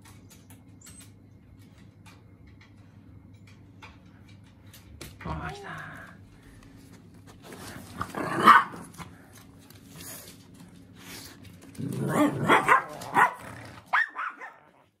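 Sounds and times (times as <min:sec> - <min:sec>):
dogs growling: 0:07.6 - 0:09.3, 0:10.0 - 0:15.0
dogs barking: 0:08.1 - 0:09.1, 0:12.0 - 0:14.9.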